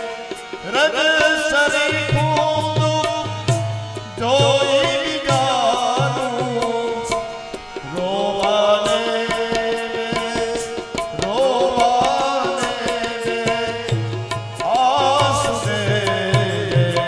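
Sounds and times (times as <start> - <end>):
harmonium melody over drone: 0.0 - 17.0
tabla strokes: 0.2 - 17.0.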